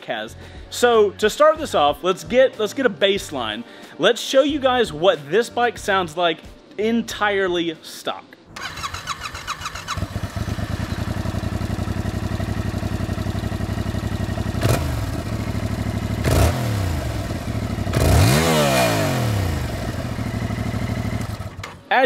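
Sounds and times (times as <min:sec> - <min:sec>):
motorcycle engine starting and revving: 0:08.5 - 0:21.9.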